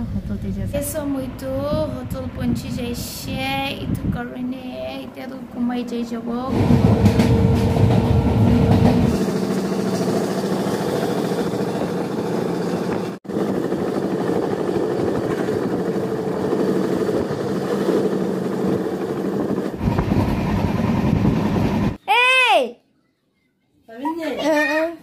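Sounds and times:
train coach rumbling and rattling: 0:00.0 - 0:22.0.

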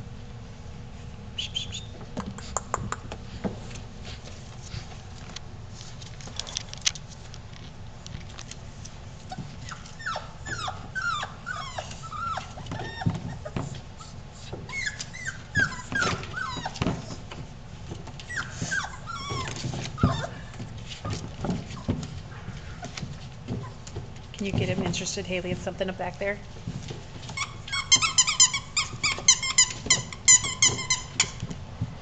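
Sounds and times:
puppies whining and yelping: 0:09.2 - 0:17.4, 0:18.2 - 0:20.8, 0:27.3 - 0:31.4.

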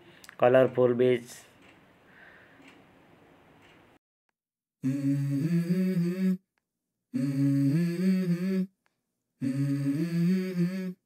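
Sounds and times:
person humming a melody: 0:04.8 - 0:06.5, 0:07.1 - 0:08.8, 0:09.4 - 0:11.0.

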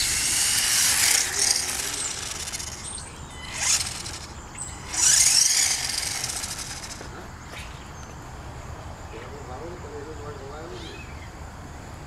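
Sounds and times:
electric motor whining: 0:00.0 - 0:07.1.

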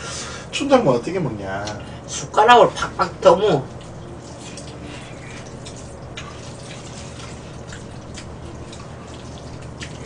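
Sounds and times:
steady low hum: 0:00.0 - 0:10.0
wet chewing smacks: 0:03.7 - 0:10.0.

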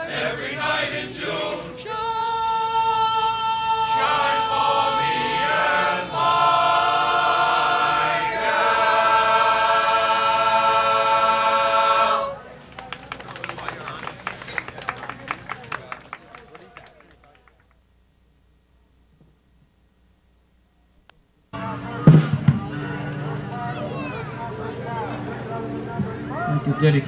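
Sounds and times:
men's chorus singing: 0:00.0 - 0:12.5.

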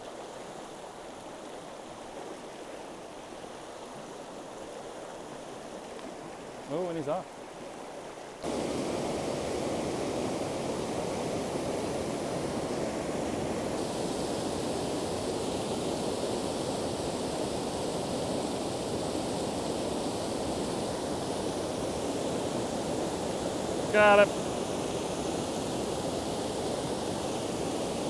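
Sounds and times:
river water rushing over rapids: 0:00.0 - 0:28.0.

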